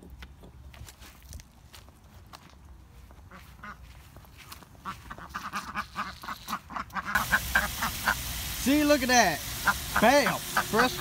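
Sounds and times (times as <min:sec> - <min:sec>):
ducks quacking: 0:03.3 - 0:03.9, 0:04.8 - 0:08.4, 0:09.4 - 0:11.0
garden hose gushing water: 0:06.0 - 0:11.0.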